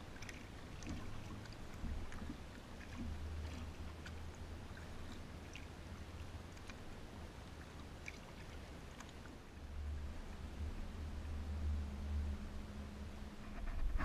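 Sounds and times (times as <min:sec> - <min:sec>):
water dripping and splashing off paddle: 0:00.0 - 0:09.6
steady low rumble: 0:00.0 - 0:14.0.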